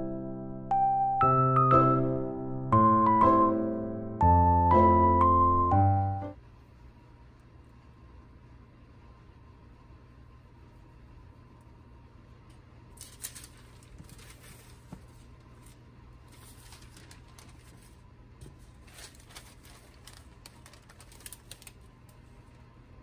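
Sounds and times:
parchment paper crinkling: 12.9s - 22.6s.

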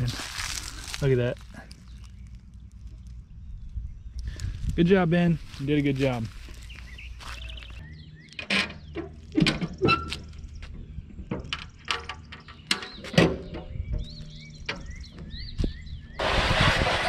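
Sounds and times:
footsteps on pavement: 0.0s - 3.0s, 4.4s - 7.9s
metal gate clanking: 8.4s - 15.4s.

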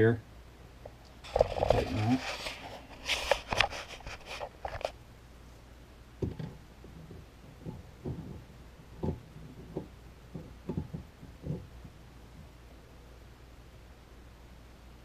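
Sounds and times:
nut knocking and creaking: 6.2s - 12.5s.

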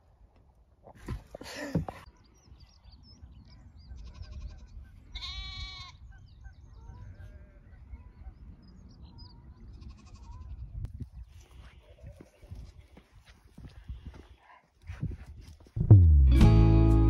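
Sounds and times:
birds chirping: 1.6s - 12.6s
sheep bleating: 4.0s - 6.0s.

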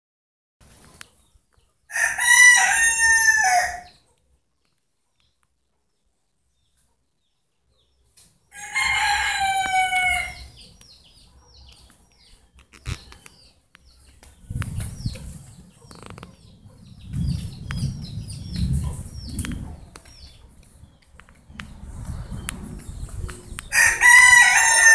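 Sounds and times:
small birds chirping: 0.6s - 2.8s, 3.7s - 24.9s
rooster crowing: 1.9s - 4.0s, 8.5s - 10.5s, 23.7s - 24.9s
low rumble on microphone: 14.3s - 24.5s.

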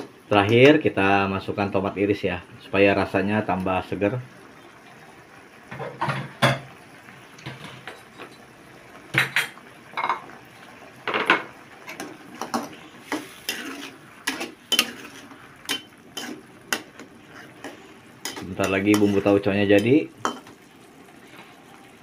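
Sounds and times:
metal spoon scraping a wok: 13.0s - 18.4s.

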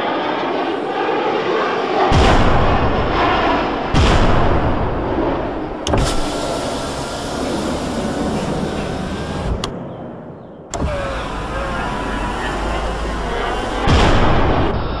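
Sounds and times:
actuator motor whirring: 5.7s - 9.8s, 10.7s - 14.8s
sharp clicks: 5.8s - 9.8s, 10.7s - 14.6s
rushing noise: 10.7s - 15.0s.

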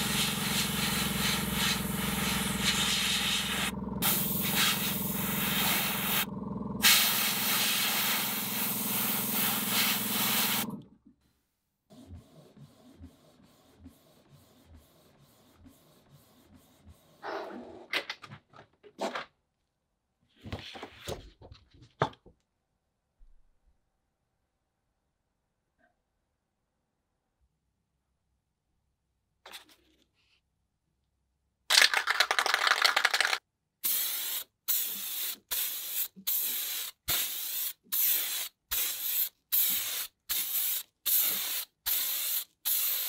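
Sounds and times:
airbrush spraying hiss: 0.0s - 10.7s, 33.8s - 43.0s
low hum: 0.8s - 7.5s.

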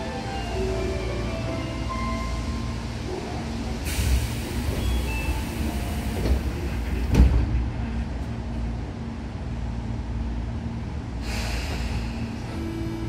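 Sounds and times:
train car rumble and hum: 0.0s - 13.0s
hiss of air: 3.8s - 7.0s, 11.2s - 12.6s.

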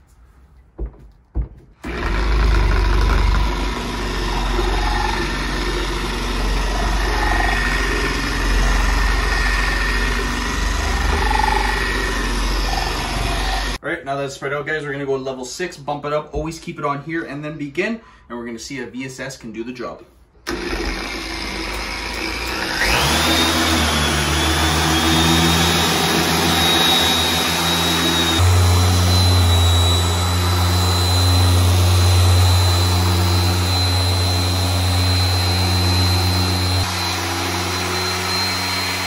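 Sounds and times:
car polisher whining: 1.8s - 13.8s, 20.5s - 39.0s
low hum: 25.8s - 39.0s.

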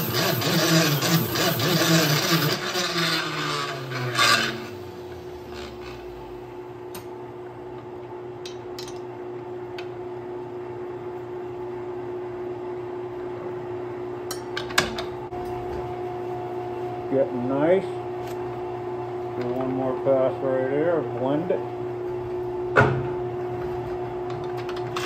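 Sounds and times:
grinder rasping on rubber: 0.0s - 4.8s
grinder and lathe humming: 0.0s - 6.3s.

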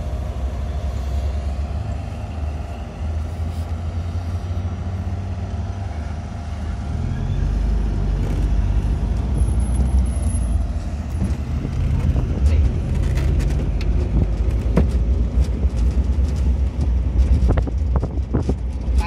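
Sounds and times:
vehicle rumbling on dirt road: 0.0s - 19.0s
knocks and rattles over bumps: 7.7s - 19.0s.

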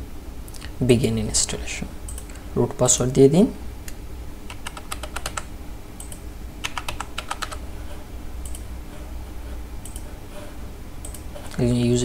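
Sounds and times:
typing on computer keyboard: 4.5s - 7.6s.

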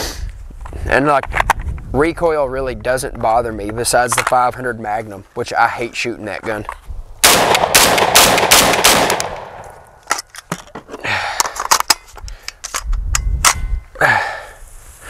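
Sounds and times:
shotgun shots: 7.2s - 9.7s
metallic clicks of gun handling: 9.1s - 10.8s, 11.4s - 13.7s.

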